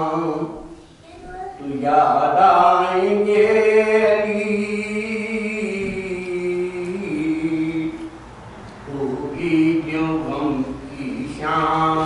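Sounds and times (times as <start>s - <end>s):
man chanting: 8.9s - 12.0s.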